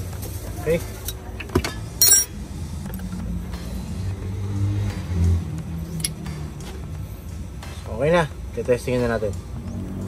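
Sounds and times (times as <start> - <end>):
engine humming: 0.0 - 10.0
metallic clink of tools: 2.0 - 2.4.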